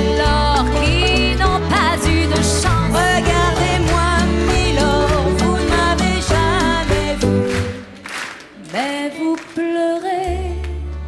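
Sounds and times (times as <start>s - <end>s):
bass notes: 0.0s - 8.0s
woman singing with vibrato: 0.0s - 8.0s, 8.6s - 11.0s
live band playing: 0.0s - 8.8s.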